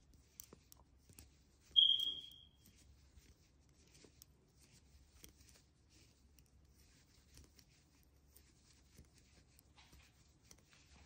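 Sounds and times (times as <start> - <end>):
crochet hook rubbing and ticking: 0.0 - 11.0
high-pitched ringing ping: 1.8 - 2.6.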